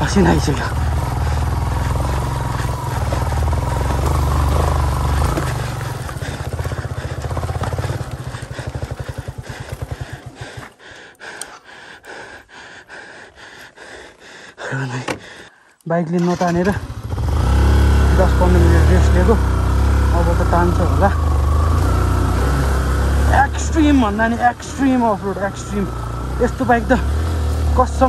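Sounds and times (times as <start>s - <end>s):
motorcycle engine stalling: 0.0s - 10.8s, 16.2s - 28.0s
faint clicks: 10.6s - 12.1s.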